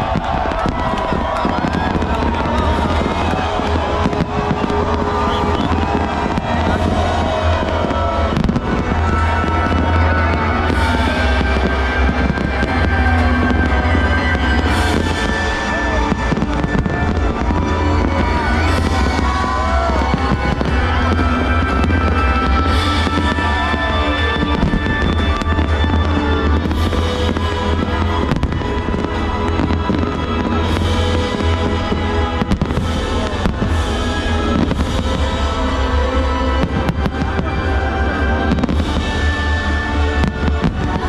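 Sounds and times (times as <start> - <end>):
fireworks booming and crackling: 0.0 - 41.0
music playing: 0.0 - 41.0.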